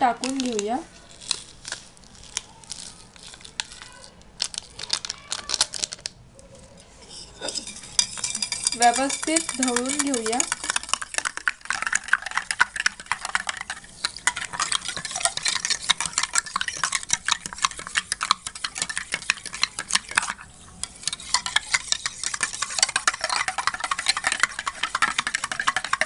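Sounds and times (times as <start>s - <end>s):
spoon clinking in metal cup: 7.0s - 26.0s.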